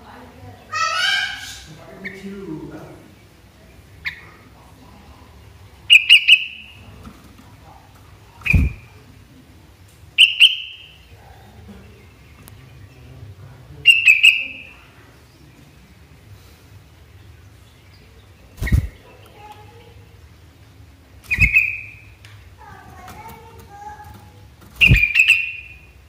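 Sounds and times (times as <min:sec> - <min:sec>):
bird whistled calls: 0:05.9 - 0:06.7, 0:08.4 - 0:08.8, 0:10.2 - 0:11.0, 0:13.9 - 0:14.7, 0:21.3 - 0:22.0, 0:24.8 - 0:25.9.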